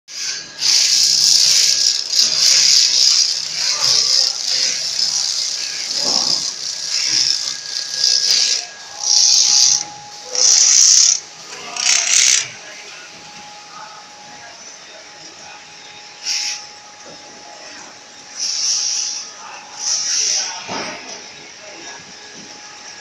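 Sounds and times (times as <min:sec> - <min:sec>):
machine rattling hiss: 0:00.1 - 0:12.5, 0:18.4 - 0:20.8.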